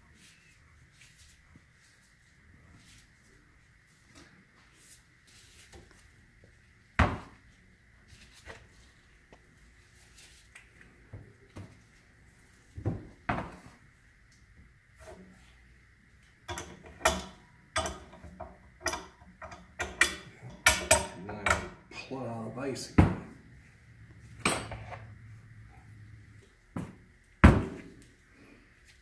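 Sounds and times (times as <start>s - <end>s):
wrench clicking and clanking: 16.5s - 21.8s.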